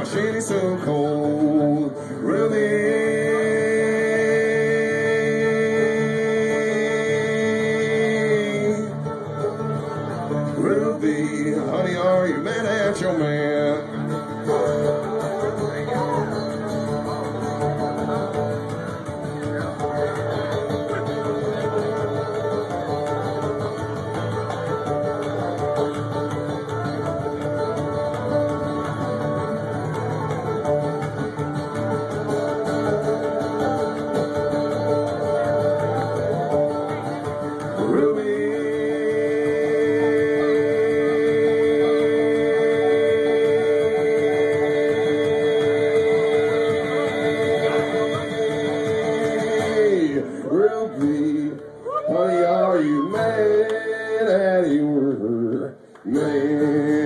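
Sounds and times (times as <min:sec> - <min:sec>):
person singing: 0:00.0 - 0:09.2, 0:10.5 - 0:16.5, 0:37.0 - 0:57.0
acoustic guitar: 0:00.0 - 0:57.0
banjo picking: 0:00.0 - 0:57.0
bluegrass band playing: 0:00.0 - 0:57.0.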